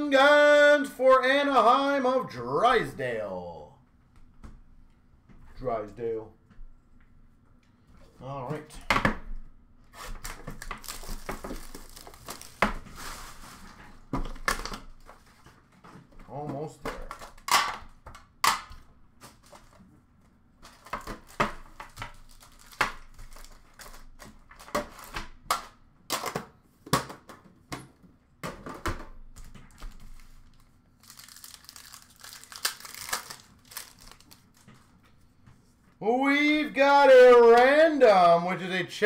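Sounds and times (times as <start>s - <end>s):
wrappers crinkling and tearing: 10.0s - 13.7s, 20.7s - 25.1s, 29.7s - 34.7s
cards being handled: 29.4s - 35.0s.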